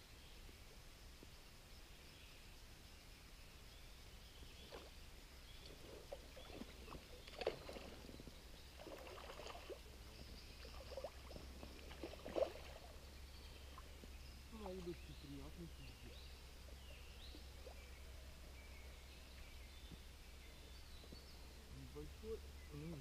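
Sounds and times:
water splashing and lapping: 0:05.6 - 0:13.0.

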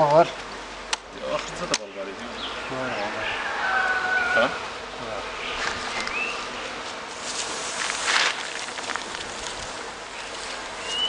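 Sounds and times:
faint bee buzzing: 0:00.0 - 0:11.0
footsteps: 0:05.5 - 0:11.0
rustling handling noise: 0:06.8 - 0:11.0.

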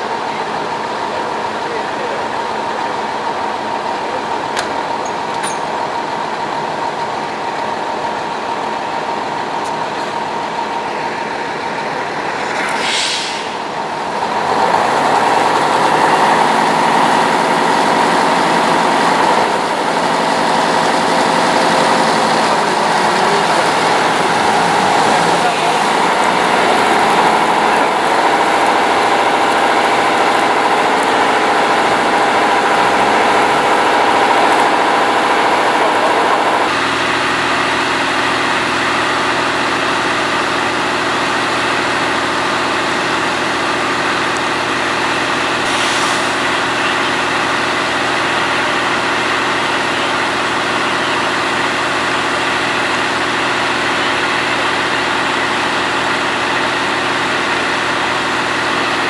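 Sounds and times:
diesel engine running: 0:00.0 - 0:59.0
water jet hissing: 0:12.2 - 0:17.7, 0:45.6 - 0:47.4.

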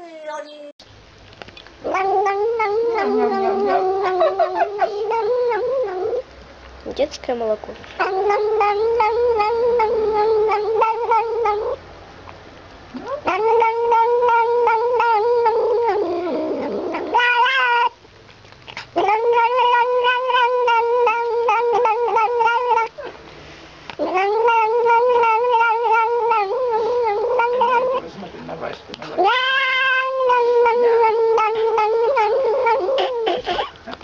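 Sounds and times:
kitten squealing: 0:01.8 - 0:06.2, 0:08.0 - 0:11.8, 0:13.0 - 0:18.0, 0:18.8 - 0:23.2, 0:24.0 - 0:28.1, 0:29.1 - 0:33.8
kitten wailing: 0:01.8 - 0:06.2, 0:08.0 - 0:11.8, 0:13.0 - 0:18.0, 0:18.9 - 0:23.1, 0:24.0 - 0:28.1, 0:29.1 - 0:33.7.

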